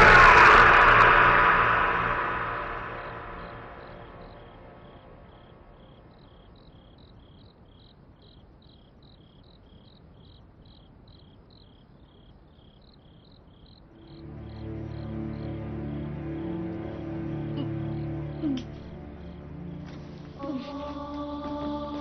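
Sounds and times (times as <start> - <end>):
cricket chirping: 0.0 - 22.0
low held music notes: 14.0 - 22.0.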